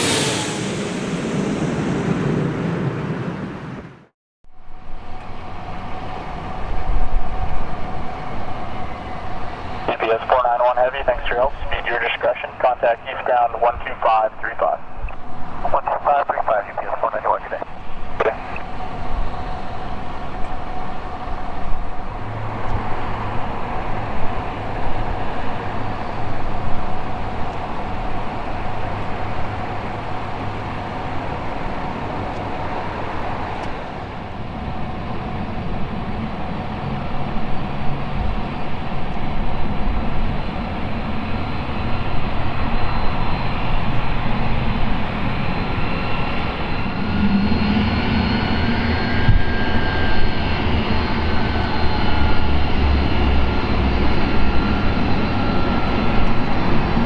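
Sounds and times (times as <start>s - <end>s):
jet engines whining: 0.0s - 57.0s.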